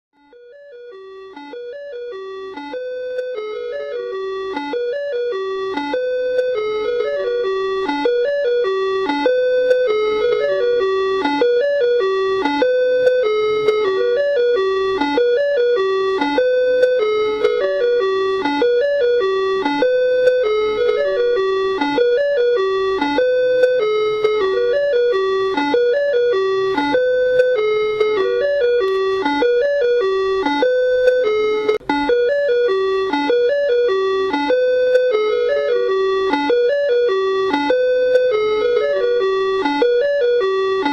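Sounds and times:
ice cream van chime melody: 0.2 - 40.9.

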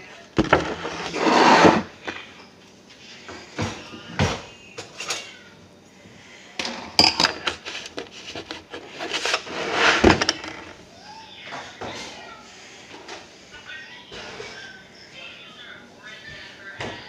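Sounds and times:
household items knocking and clattering: 0.4 - 2.3, 6.6 - 10.8.

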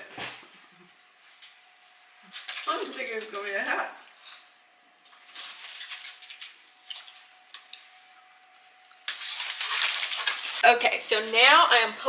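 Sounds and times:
aluminium foil crinkling: 2.2 - 8.0, 8.8 - 10.8.

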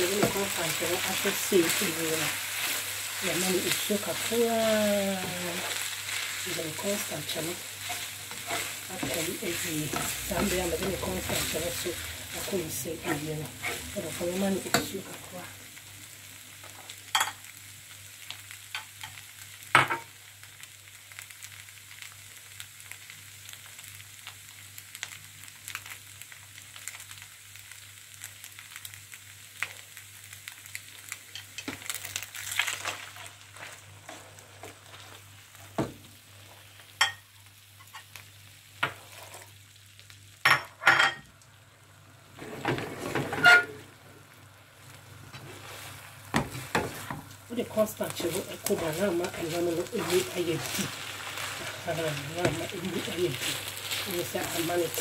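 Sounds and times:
meat sizzling in a frying pan: 0.0 - 55.0
spatula scraping and knocking pan: 6.8 - 15.0.

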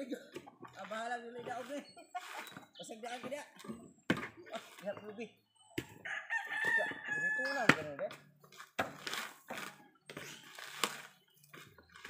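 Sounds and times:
rooster crowing: 6.0 - 7.7
dull thumps of coconuts: 6.6 - 12.0.

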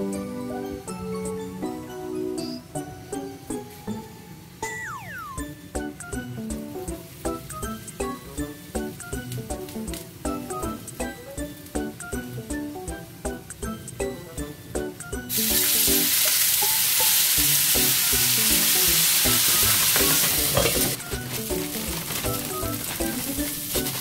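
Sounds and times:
dumplings sizzling in a pan: 15.3 - 24.0.

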